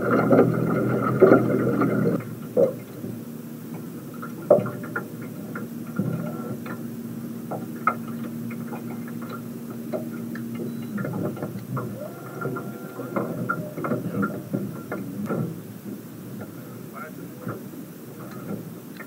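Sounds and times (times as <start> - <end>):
small motor humming: 10.1 - 14.5.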